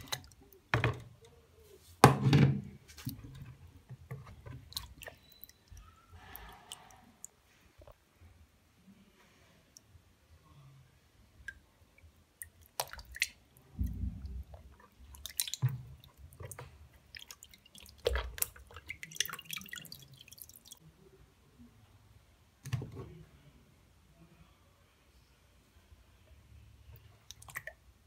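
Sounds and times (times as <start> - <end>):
dough squelching in water: 0.0 - 0.7, 2.8 - 7.9, 11.4 - 20.8, 27.0 - 27.9.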